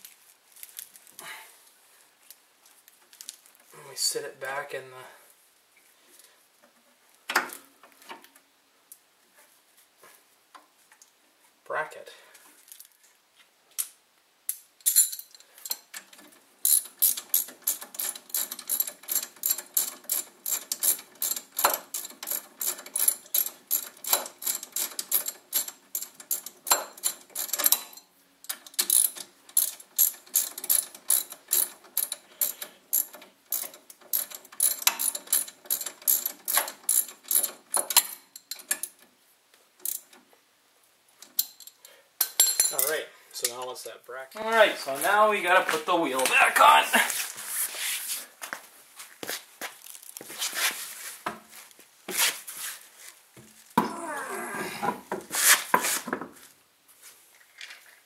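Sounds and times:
ratchet wrench clicking: 16.6 - 38.9.

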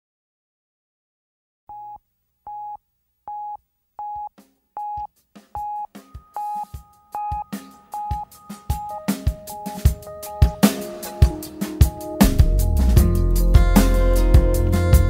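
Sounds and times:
electronic drum beat: 4.2 - 15.0.

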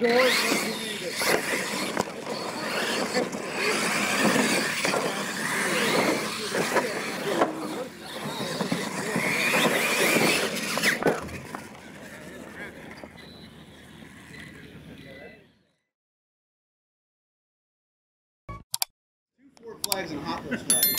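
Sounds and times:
rc truck motors whining: 0.0 - 15.9.

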